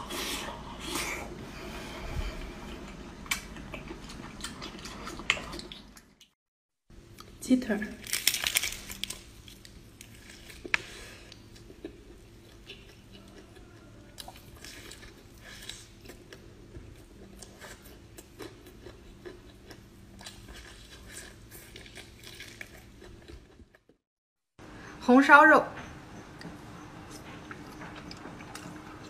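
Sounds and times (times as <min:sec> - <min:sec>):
faint steady hum: 0:00.0 - 0:06.2
crunching and chewing: 0:02.8 - 0:06.3, 0:07.1 - 0:24.0, 0:26.4 - 0:29.0
fried chicken crackling: 0:07.9 - 0:11.7.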